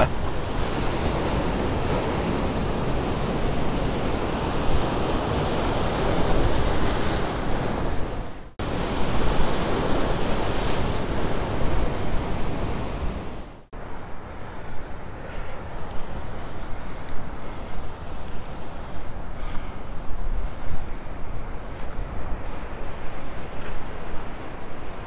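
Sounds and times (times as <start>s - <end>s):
ocean surf washing over rocks: 0.0s - 13.6s.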